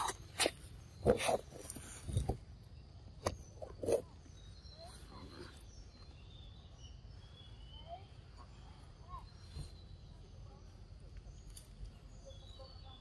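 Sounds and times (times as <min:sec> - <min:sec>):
faint bird chirps: 0:00.0 - 0:13.0.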